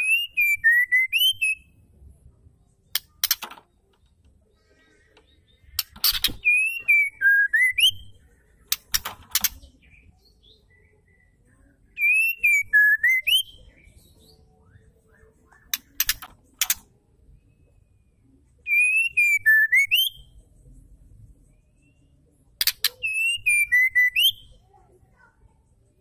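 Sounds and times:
sharp clicks: 0:02.9 - 0:04.1, 0:08.7 - 0:09.7, 0:15.7 - 0:16.9
high bird twittering: 0:04.6 - 0:16.8, 0:18.7 - 0:20.3, 0:22.6 - 0:24.6
bird whistled phrase: 0:11.9 - 0:13.6, 0:22.9 - 0:24.6.

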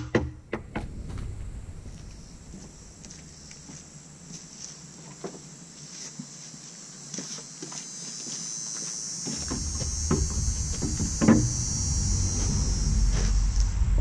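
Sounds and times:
low rumble: 0:00.5 - 0:04.3, 0:09.4 - 0:14.0
steady high hiss: 0:00.5 - 0:14.0
footsteps: 0:00.8 - 0:14.0
wooden knocks: 0:09.4 - 0:11.6.

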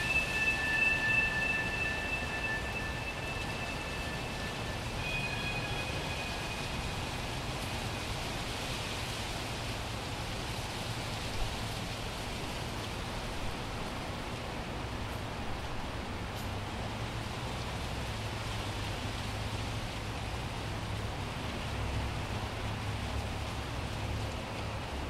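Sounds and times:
faint high tones: 0:00.0 - 0:07.9
steady hiss: 0:00.0 - 0:25.0.

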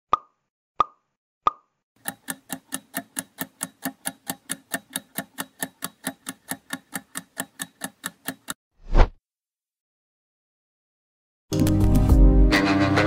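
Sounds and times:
clock ticking: 0:02.0 - 0:08.6.

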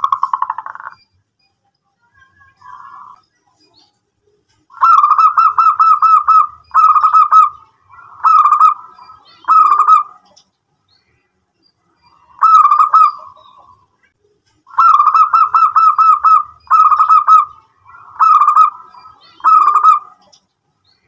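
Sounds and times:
dove rolling coos: 0:04.8 - 0:10.2, 0:12.4 - 0:13.5, 0:14.7 - 0:20.2.

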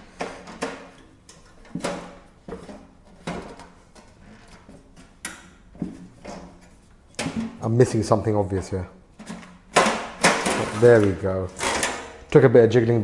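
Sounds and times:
sheet metal clunks and rattles: 0:05.8 - 0:07.8.

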